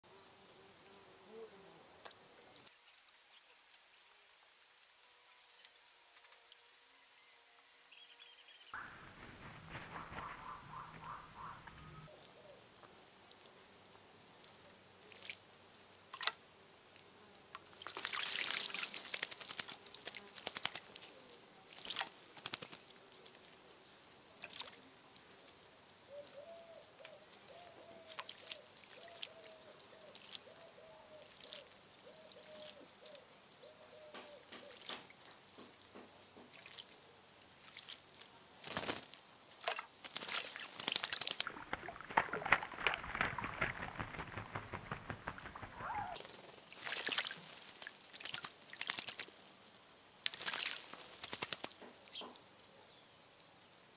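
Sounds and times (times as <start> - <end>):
birds splashing water: 12.1 - 16.4, 17.6 - 33.7, 34.4 - 45.6, 46.2 - 52.4.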